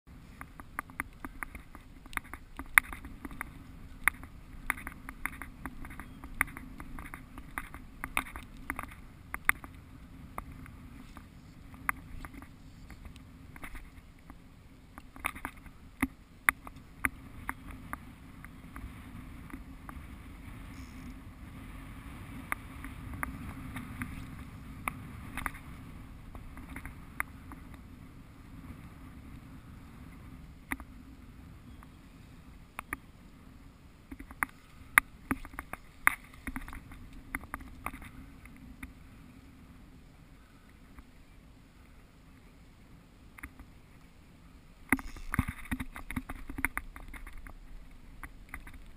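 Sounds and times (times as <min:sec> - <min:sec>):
wind rumble on microphone: 0:00.1 - 0:48.9
sharp clicks and taps: 0:00.4 - 0:09.8.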